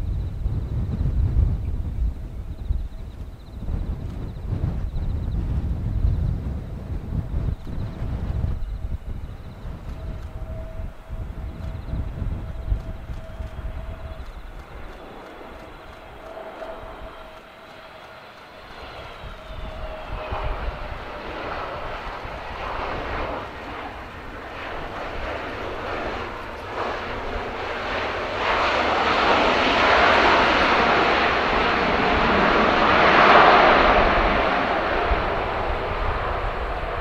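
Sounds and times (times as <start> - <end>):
jet engine whine: 0.0 - 37.0
rush of jet noise: 11.2 - 37.0.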